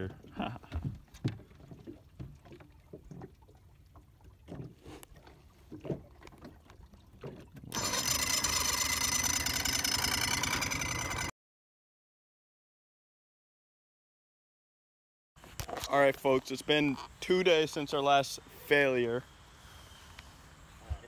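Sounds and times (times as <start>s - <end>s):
soft knocks against hull: 0.1s - 3.4s, 5.6s - 7.7s.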